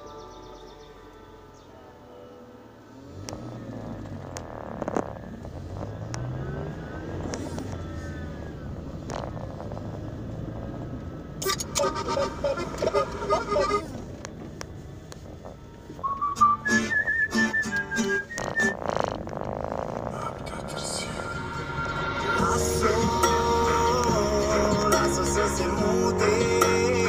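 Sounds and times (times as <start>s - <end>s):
car engine and road noise: 0.0s - 27.0s
choppy pitched sound: 20.1s - 27.0s.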